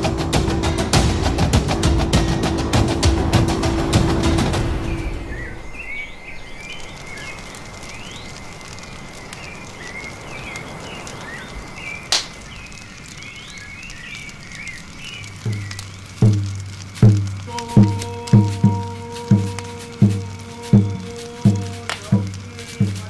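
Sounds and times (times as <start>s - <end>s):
low drum hits: 0.0s - 5.3s, 15.5s - 23.0s
music: 0.0s - 5.6s, 15.5s - 23.0s
high insect drone: 0.0s - 23.0s
chirping calls: 4.5s - 23.0s.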